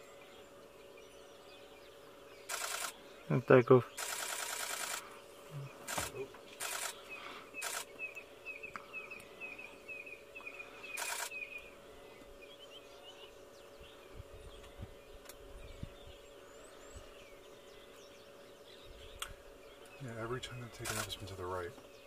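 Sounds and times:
faint hum: 0:00.0 - 0:22.0
camera shutter bursts: 0:02.5 - 0:03.0, 0:04.0 - 0:05.0, 0:05.9 - 0:07.0, 0:07.6 - 0:07.9, 0:10.9 - 0:11.5, 0:20.8 - 0:21.3
bird calling sharp notes: 0:10.2 - 0:11.8.

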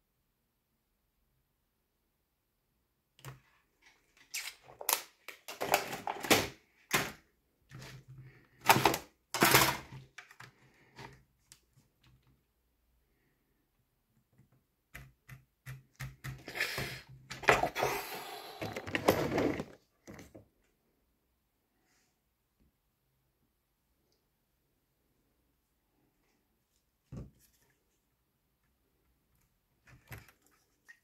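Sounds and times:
plastic parts clicking and knocking: 0:03.2 - 0:12.3, 0:14.3 - 0:16.5, 0:18.6 - 0:20.4.

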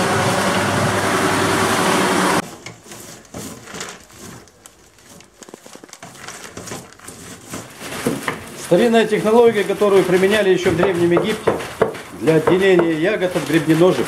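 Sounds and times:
grape crusher motor humming: 0:00.0 - 0:06.3
grapes rustling on wire mesh: 0:02.4 - 0:14.0.

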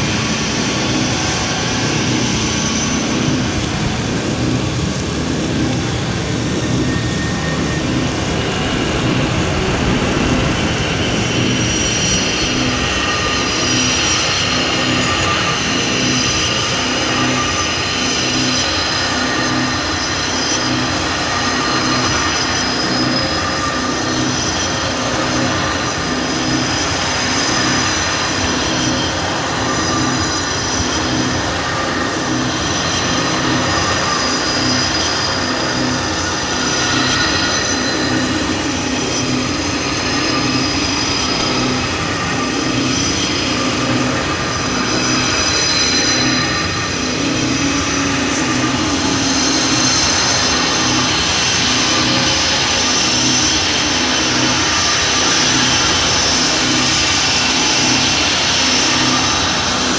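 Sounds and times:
low pulsing throb: 0:03.0 - 0:14.0
dense noise wash: 0:03.4 - 0:15.7
high whining tones: 0:06.5 - 0:15.3.

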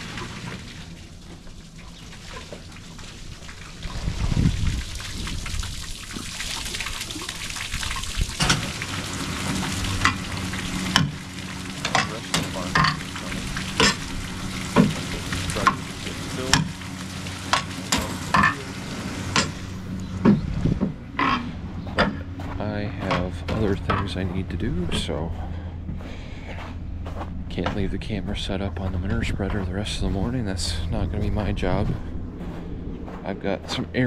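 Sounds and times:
liquid manure splashing: 0:00.0 - 0:21.4
low machine hum: 0:00.0 - 0:34.0.

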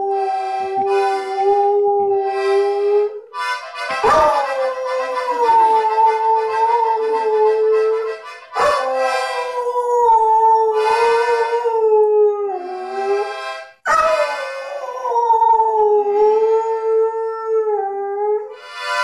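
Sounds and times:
toy accordion notes: 0:00.0 - 0:01.6, 0:02.3 - 0:09.6, 0:10.8 - 0:11.7, 0:12.6 - 0:14.8, 0:18.5 - 0:19.0
dog howling: 0:04.0 - 0:08.0, 0:08.6 - 0:12.7, 0:13.9 - 0:18.5.

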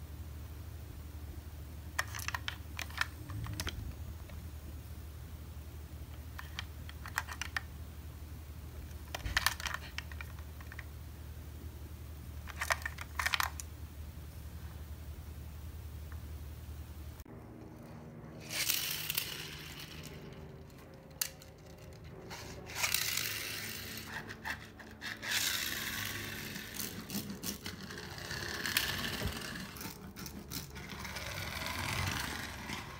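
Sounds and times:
toy cars rolling on laminate floor: 0:01.9 - 0:04.4, 0:06.2 - 0:07.7, 0:08.8 - 0:10.9, 0:12.4 - 0:13.7, 0:17.8 - 0:32.9.

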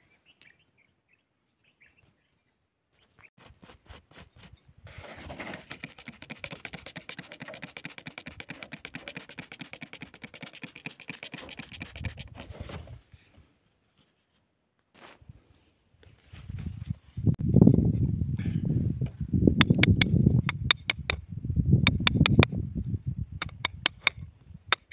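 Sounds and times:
spray bottle squirting water: 0:05.6 - 0:12.3.

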